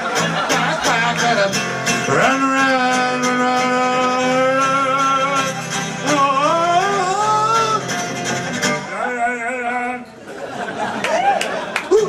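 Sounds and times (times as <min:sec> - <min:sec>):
strummed acoustic guitar: 0:00.0 - 0:10.0
man singing: 0:00.4 - 0:08.0, 0:08.6 - 0:10.2.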